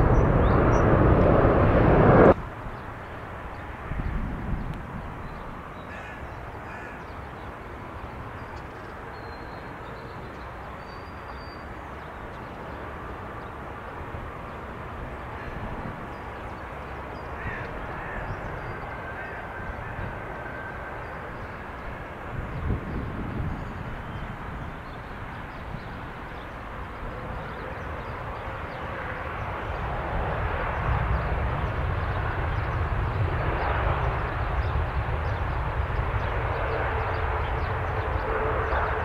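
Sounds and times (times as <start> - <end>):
distant jet airliner rumble: 0.0 - 39.0
faint high bird calls: 17.2 - 22.0.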